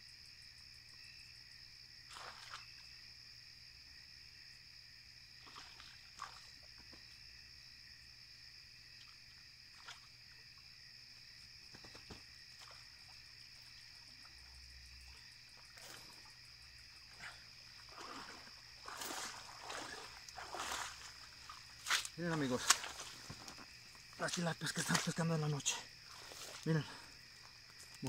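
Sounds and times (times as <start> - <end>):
frogs and insects trilling: 0.0 - 28.0
water splashing: 2.1 - 2.8, 5.4 - 7.0, 9.0 - 10.4, 11.8 - 27.2.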